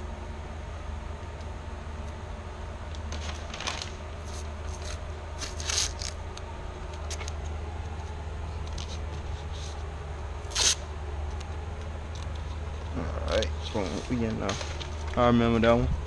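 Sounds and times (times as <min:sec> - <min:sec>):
steady low hum: 0:00.0 - 0:16.0
paper rustling: 0:03.0 - 0:06.2, 0:08.6 - 0:09.9, 0:13.4 - 0:15.2
tape ripping: 0:03.0 - 0:06.2, 0:10.5 - 0:10.8.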